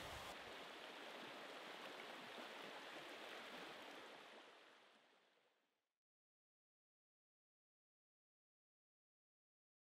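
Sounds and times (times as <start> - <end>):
stream water over stones: 0.0 - 5.6.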